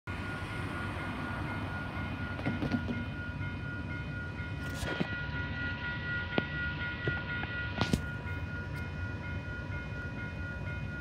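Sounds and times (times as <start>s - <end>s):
low rumble of train: 0.1s - 11.0s
railway crossing warning bell: 0.1s - 11.0s.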